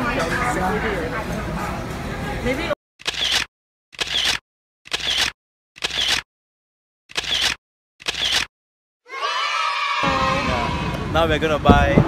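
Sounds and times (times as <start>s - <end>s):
camera shutter clicks: 3.0s - 6.2s, 7.1s - 8.5s.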